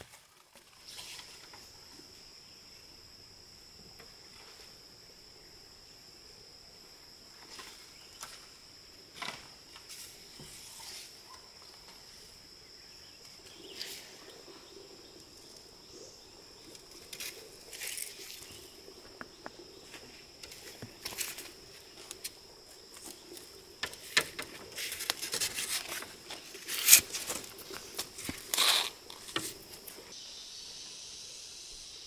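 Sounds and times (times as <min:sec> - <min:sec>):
rustles: 0:00.0 - 0:02.2, 0:16.6 - 0:30.2
insects high-pitched drone: 0:00.6 - 0:32.0.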